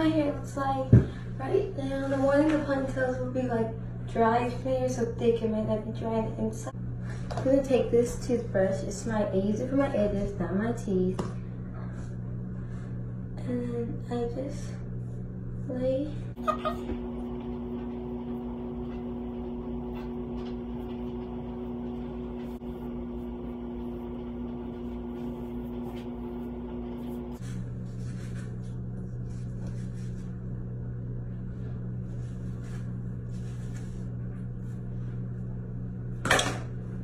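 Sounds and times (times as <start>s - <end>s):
low motor hum: 0.0s - 37.0s.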